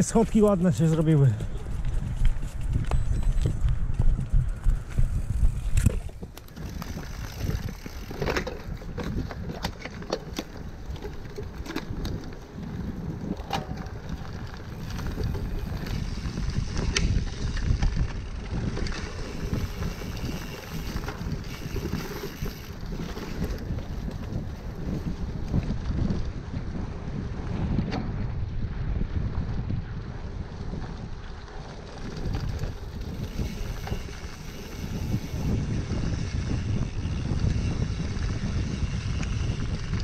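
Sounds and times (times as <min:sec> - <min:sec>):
bike rattling and knocking: 0:00.0 - 0:40.0
wind buffeting microphone: 0:00.0 - 0:40.0.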